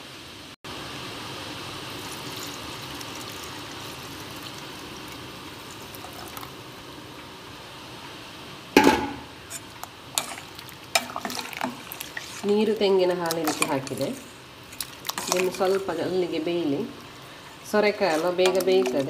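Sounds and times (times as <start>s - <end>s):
liquid pouring into pot: 1.9s - 6.6s, 10.2s - 12.4s, 13.3s - 15.9s.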